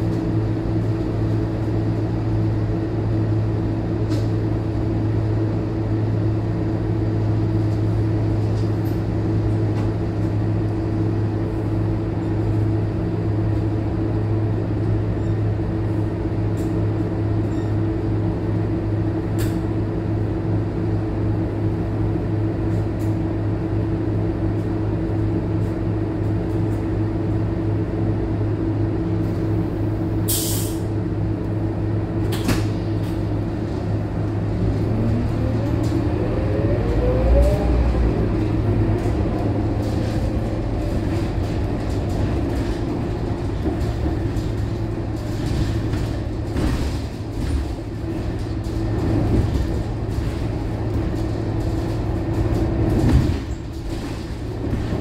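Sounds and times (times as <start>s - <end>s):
bus diesel engine: 0.0s - 55.0s
short air hisses: 30.3s - 30.8s.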